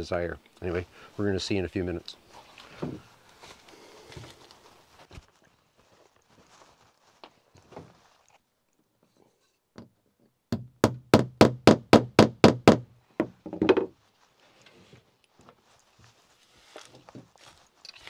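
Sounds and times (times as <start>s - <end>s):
hammer striking wood: 10.5s - 13.9s.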